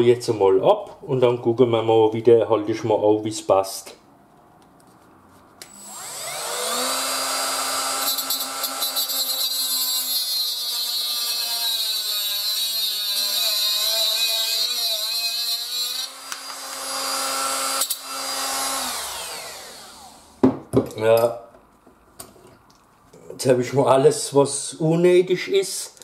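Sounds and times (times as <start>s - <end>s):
grinder cutting metal hiss: 5.7s - 20.2s
angle grinder whining: 5.7s - 20.4s.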